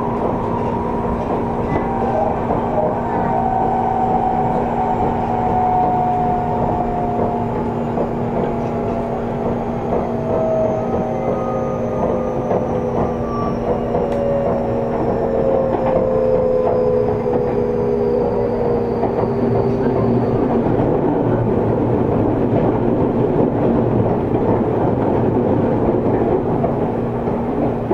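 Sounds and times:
train motor whine: 0.0 - 21.7.

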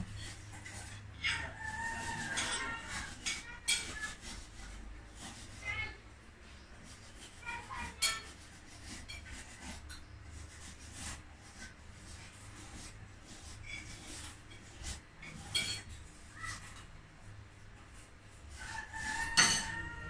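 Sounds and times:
plates and cutlery clinking: 13.5 - 16.9, 18.8 - 20.0.

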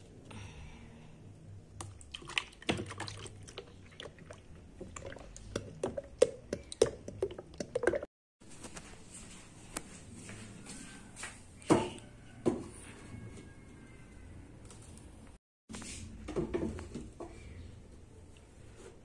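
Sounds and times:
thick liquid glugging from bottle: 1.9 - 8.1
plastic containers clicking and knocking: 4.8 - 8.1.

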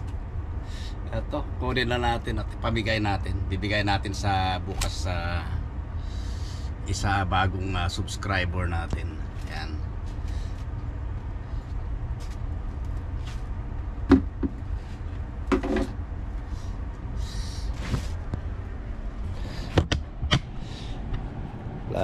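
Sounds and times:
steady low rumble: 0.0 - 22.0
sharp knocks and clicks: 15.5 - 16.0, 19.7 - 20.5.

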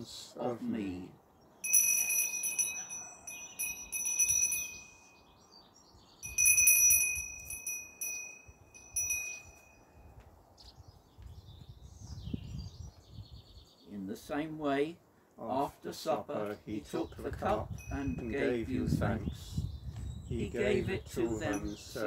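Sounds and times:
small bells jingling: 1.6 - 5.4, 6.2 - 10.0, 17.7 - 18.6, 21.3 - 22.0.

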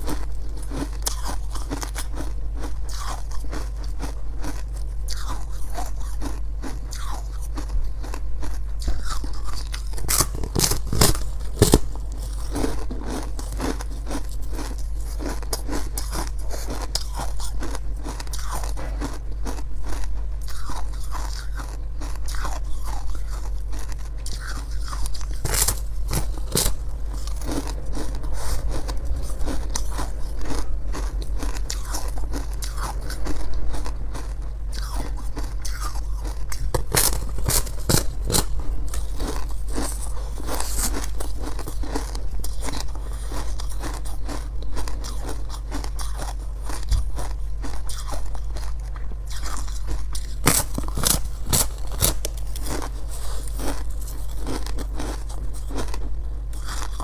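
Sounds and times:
chewing: 0.0 - 57.0.

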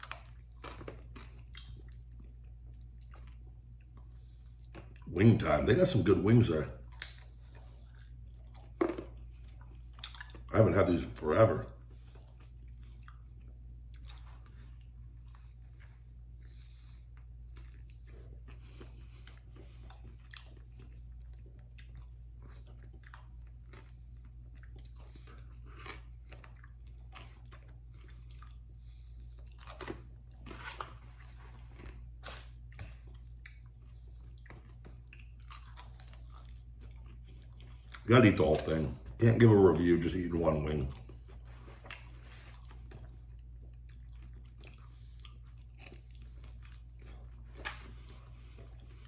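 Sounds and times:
man chewing chicken wings: 0.0 - 49.0
steady low hum: 0.0 - 49.0.

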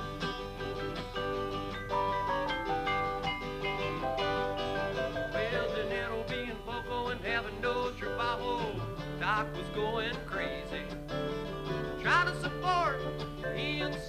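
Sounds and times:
acoustic guitar: 0.0 - 14.0
mallet keyboard ringing notes: 1.1 - 6.0
wavering bending melodic line: 1.2 - 6.2.

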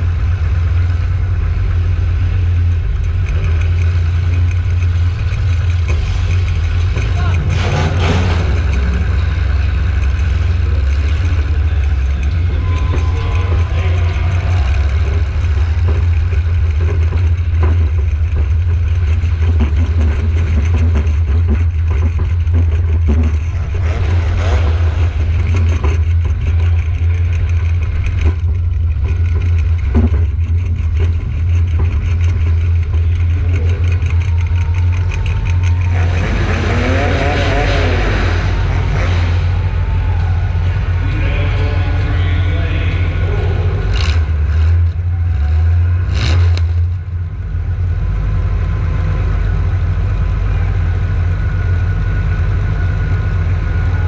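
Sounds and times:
car engine rumbling: 0.0 - 54.0.

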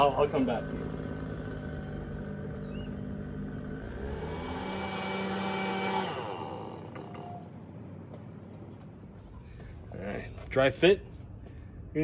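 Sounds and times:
small engine running: 0.0 - 9.0.

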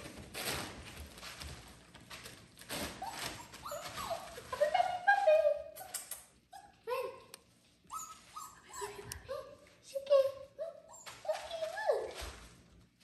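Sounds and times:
puppy whimpering: 3.0 - 4.9, 7.9 - 9.5, 10.6 - 12.1.

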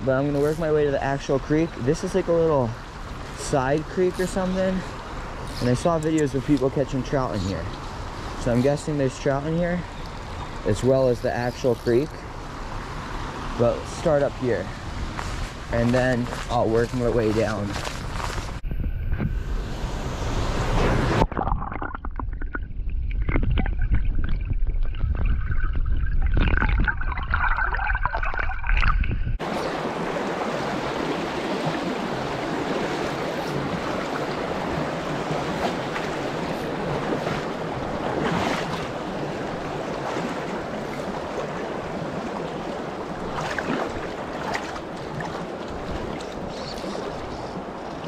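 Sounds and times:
shallow creek water rushing: 0.0 - 18.4, 29.4 - 48.0
muffled underwater creek rumble: 21.2 - 48.0.

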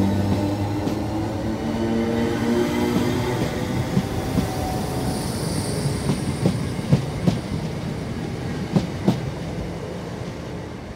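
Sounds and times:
train rumble: 0.0 - 10.9
high wheel squeal: 4.6 - 6.5.

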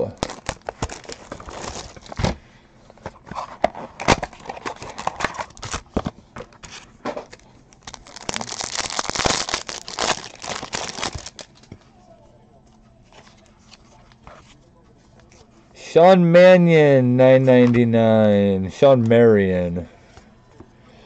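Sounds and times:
foil wrappers crinkling and tearing: 0.0 - 2.4, 3.9 - 6.0, 7.3 - 11.7.

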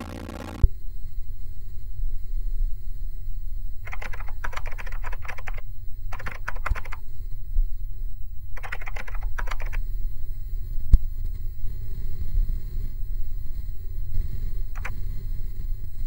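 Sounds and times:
steady low hum: 0.0 - 16.0
computer keyboard typing: 3.9 - 7.0, 8.6 - 9.8, 14.8 - 15.0.

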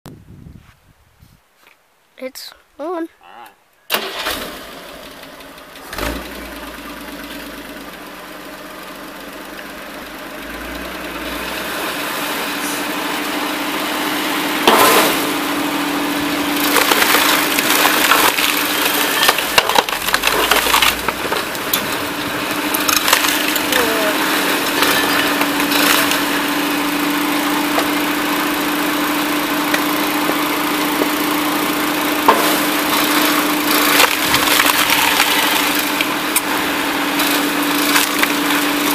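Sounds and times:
wood splitter engine running: 3.9 - 38.9
wood cracking and splintering: 16.2 - 28.6, 29.2 - 38.9.

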